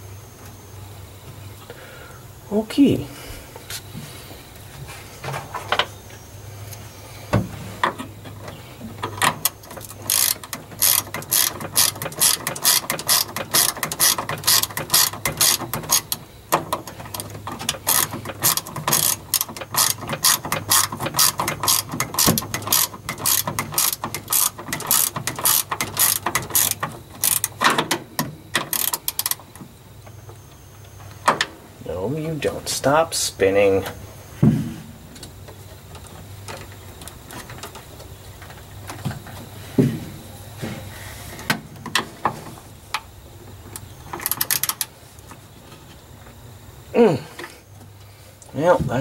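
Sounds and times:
ratchet wrench clicking: 9.1 - 29.4, 44.1 - 44.9.

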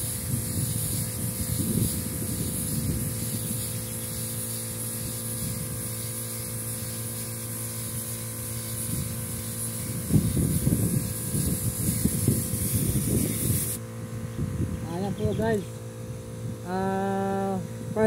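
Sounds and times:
spray gun hissing: 0.0 - 13.8
air compressor hum: 0.0 - 18.0.

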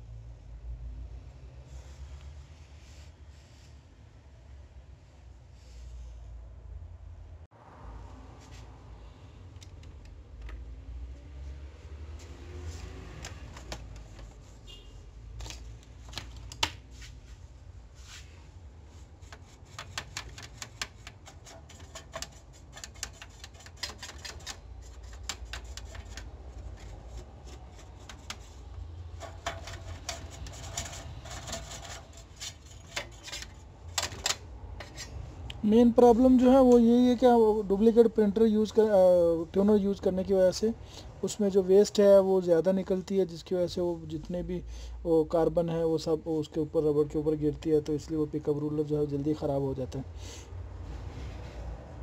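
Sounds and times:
plastic printer parts clicking: 13.2 - 14.4, 15.4 - 16.8, 19.3 - 28.6, 29.2 - 35.0.

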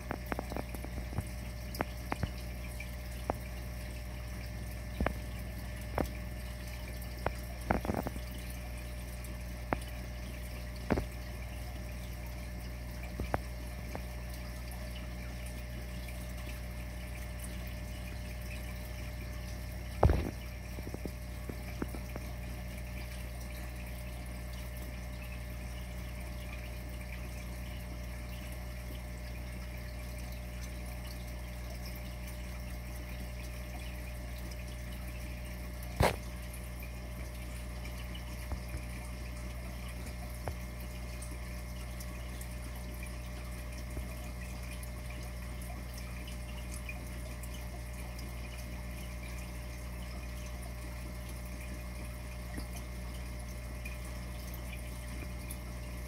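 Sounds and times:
faint ticks: 0.0 - 3.6
aquarium pump hum and water: 0.0 - 56.0.

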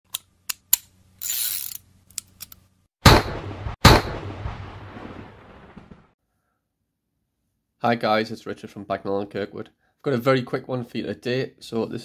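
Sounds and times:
loud bangs: 3.0 - 6.2.

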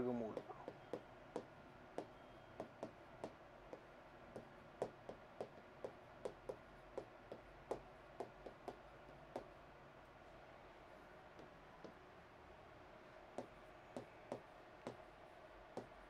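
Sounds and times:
chalk tapping on chalkboard: 4.4 - 9.5.

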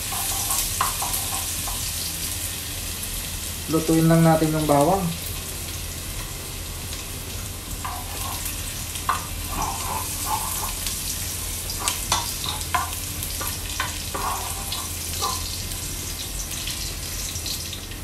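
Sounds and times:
garlic sizzling in hot oil: 0.0 - 18.0
plastic spoon scraping a pot: 7.8 - 11.1, 11.7 - 15.5.

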